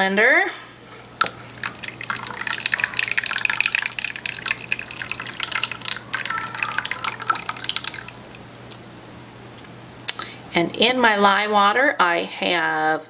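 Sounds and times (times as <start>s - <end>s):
liquid pouring and splashing: 1.1s - 8.8s
small drips and clicks: 1.1s - 8.8s.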